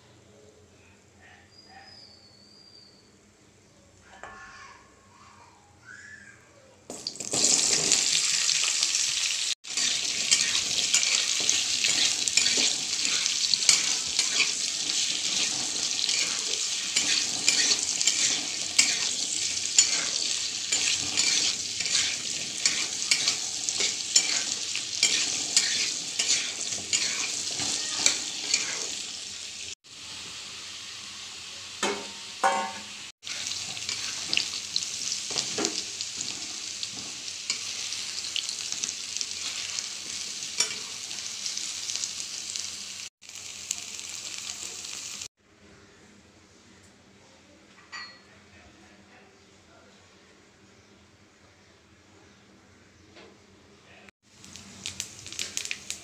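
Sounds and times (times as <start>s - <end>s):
food sizzling in hot oil: 6.9s - 45.3s, 54.2s - 56.0s
spatula scraping pan: 9.6s - 29.2s, 33.2s - 41.3s.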